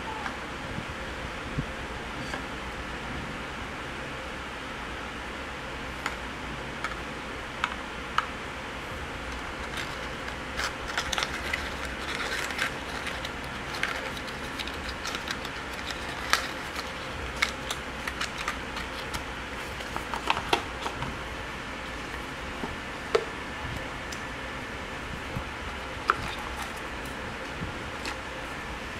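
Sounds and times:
packaging clicks and rustles: 0:09.3 - 0:21.1, 0:25.7 - 0:28.5.

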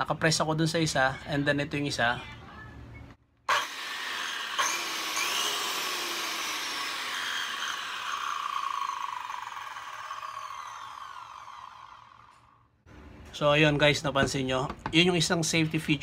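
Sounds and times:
circular saw whirring: 0:03.5 - 0:12.7.

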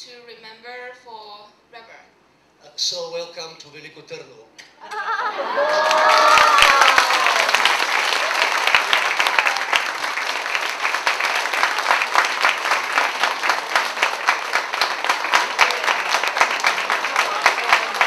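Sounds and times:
audience applauding: 0:04.9 - 0:18.0.

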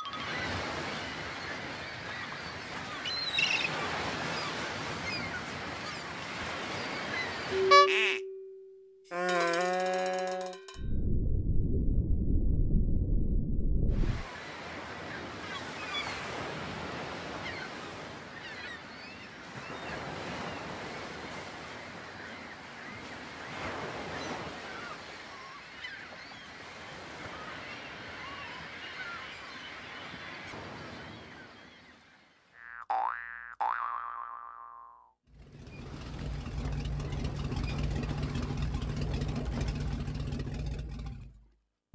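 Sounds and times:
seabirds calling: 0:00.0 - 0:08.3, 0:21.9 - 0:34.9
loud low rumble: 0:10.8 - 0:14.2
ocean surf: 0:14.0 - 0:31.8.

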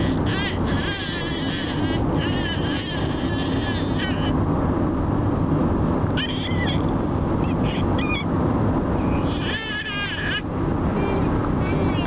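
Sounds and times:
infant babbling and squealing: 0:00.0 - 0:04.4, 0:06.2 - 0:08.3, 0:09.0 - 0:12.0
car cabin road noise: 0:00.0 - 0:12.0.

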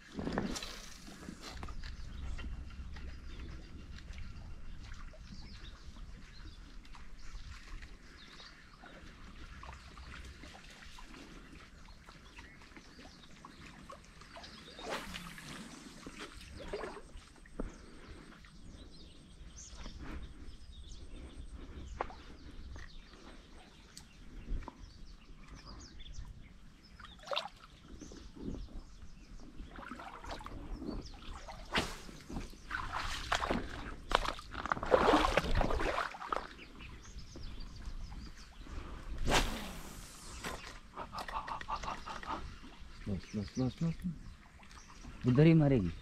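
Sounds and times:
wind rumbling on microphone: 0:00.0 - 0:13.2, 0:14.7 - 0:46.0
brief sweeping sounds: 0:39.2 - 0:40.7.

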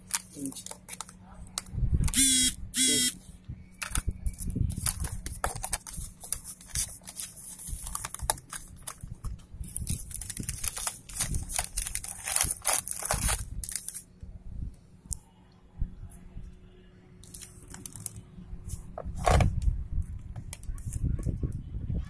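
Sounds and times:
plastic bag rustling: 0:03.8 - 0:14.1.

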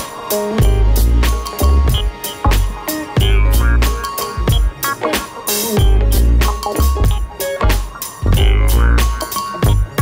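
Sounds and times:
music with drum beat and bass: 0:00.0 - 0:10.0.

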